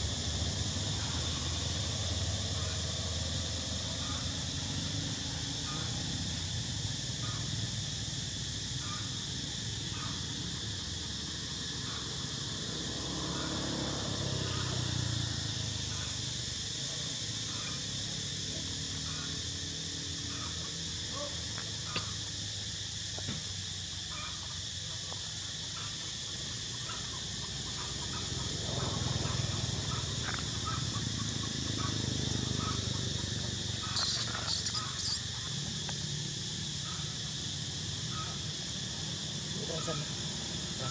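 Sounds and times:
short animal calls: 0:27.8 - 0:35.6.

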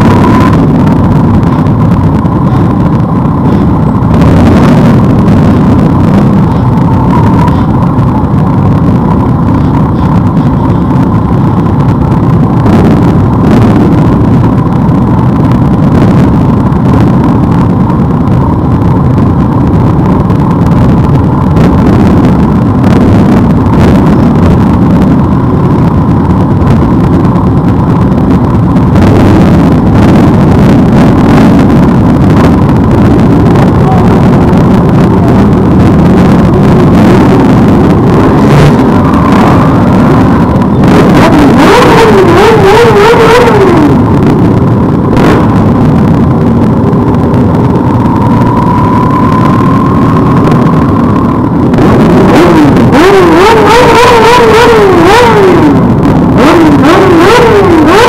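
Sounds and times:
motorcycle engines running: 0:00.0 - 0:58.0.

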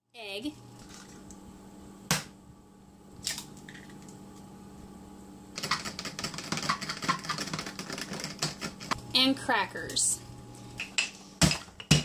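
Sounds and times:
fork beating eggs in plastic container: 0:05.6 - 0:09.0.

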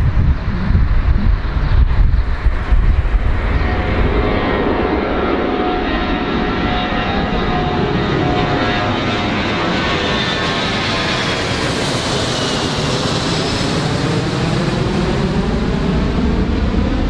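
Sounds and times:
jet engines rushing: 0:00.0 - 0:17.0.

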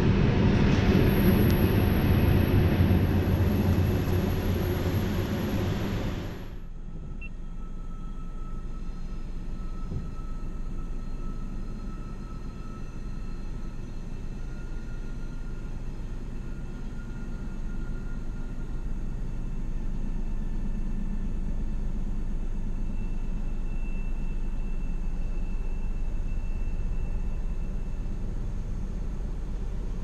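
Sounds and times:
steady low rumble: 0:00.0 - 0:08.5.

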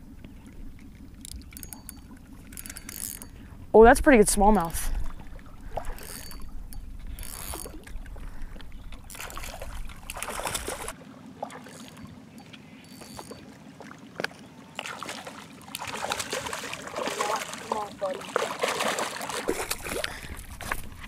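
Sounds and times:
fishing reel cranking: 0:00.8 - 0:03.5, 0:05.8 - 0:08.0, 0:09.0 - 0:10.9, 0:11.6 - 0:13.4
water lapping at rocks: 0:04.5 - 0:21.0.

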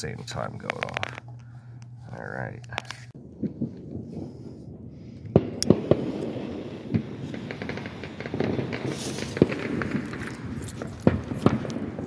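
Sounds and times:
firework fuse sputtering: 0:05.4 - 0:12.0.

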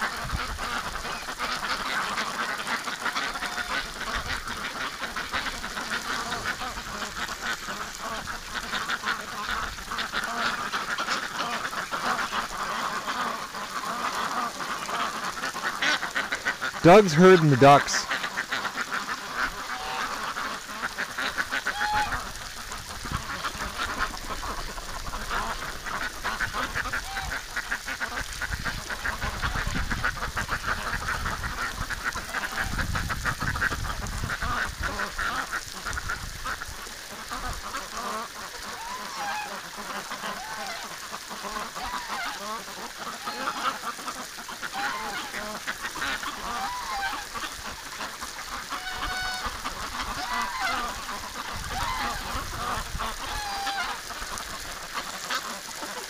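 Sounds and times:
ducks quacking: 0:00.0 - 0:56.0
duck honking calls: 0:00.6 - 0:22.4, 0:25.3 - 0:28.1, 0:37.3 - 0:47.5, 0:48.6 - 0:54.0.

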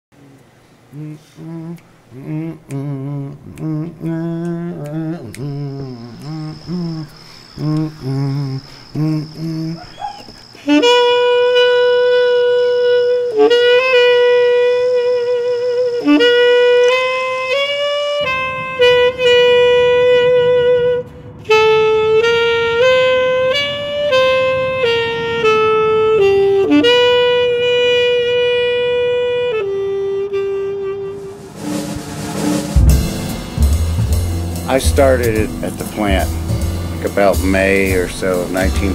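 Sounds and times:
faint hiss: 0:00.2 - 0:11.2
jazz saxophone solo: 0:10.5 - 0:38.9.

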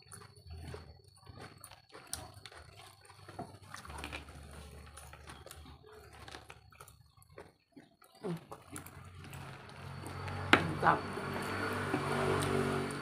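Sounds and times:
chewing and slurping noodles: 0:00.0 - 0:13.0.

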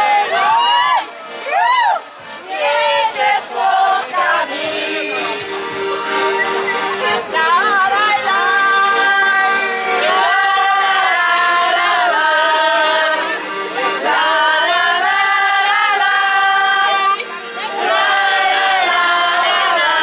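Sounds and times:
women singing folk song: 0:00.0 - 0:05.8, 0:07.0 - 0:20.0
accordion: 0:00.0 - 0:20.0.

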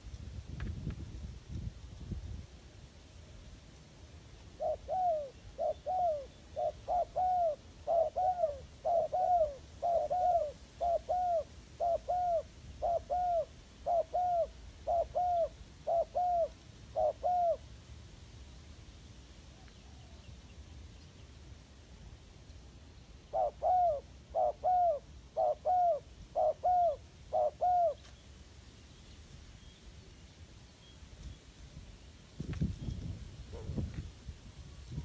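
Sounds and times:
dove cooing: 0:04.6 - 0:17.6, 0:23.2 - 0:28.1.

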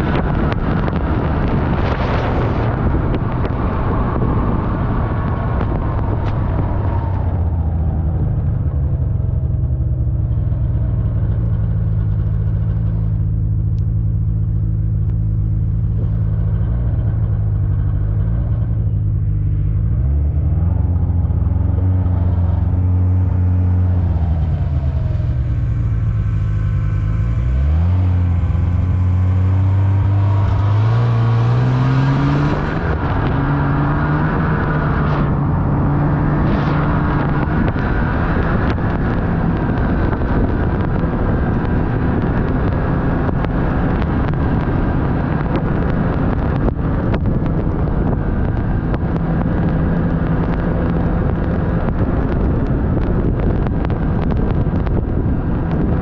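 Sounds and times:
rushing noise: 0:00.0 - 0:09.5, 0:12.2 - 0:42.8
vehicle engine driving through snow: 0:00.0 - 0:56.0.

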